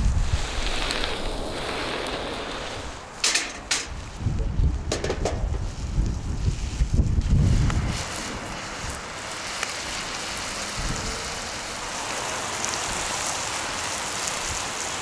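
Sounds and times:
wind buffeting microphone: 0:00.0 - 0:15.0
vegetables sizzling in a frying pan: 0:05.6 - 0:15.0.

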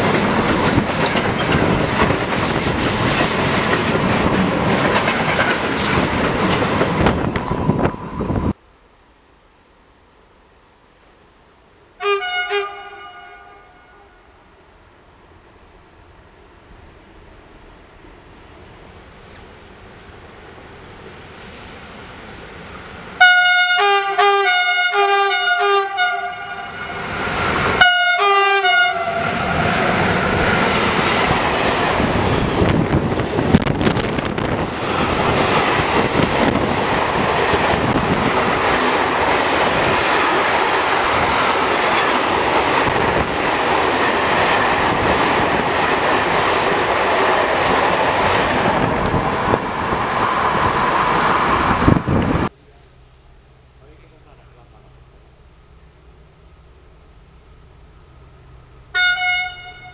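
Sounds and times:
train rumbling past: 0:00.0 - 0:08.6, 0:12.0 - 0:59.9
train horn blasts: 0:12.0 - 0:14.3, 0:23.2 - 0:27.0, 0:27.8 - 0:29.7, 0:58.9 - 0:59.9.

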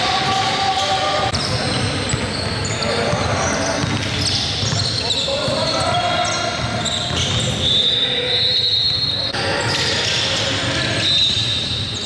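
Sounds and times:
high shoe squeaks: 0:00.1 - 0:12.0
basketball bouncing on gym floor: 0:01.3 - 0:05.6.

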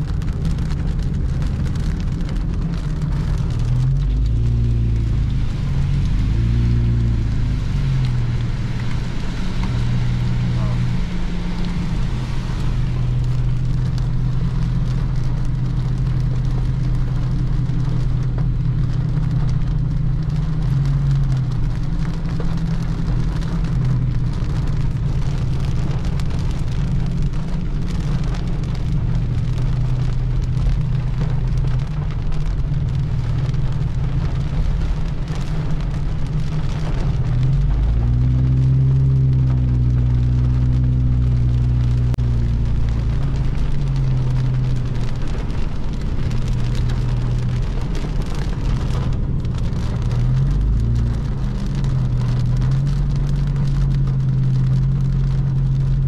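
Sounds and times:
car engine: 0:00.0 - 0:56.0
rain pattering on car: 0:00.0 - 0:56.0
road noise: 0:00.0 - 0:56.0.

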